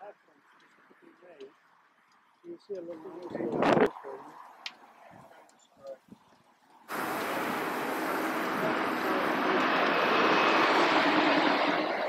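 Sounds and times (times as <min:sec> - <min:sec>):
steam hissing loudly: 0:06.9 - 0:12.0.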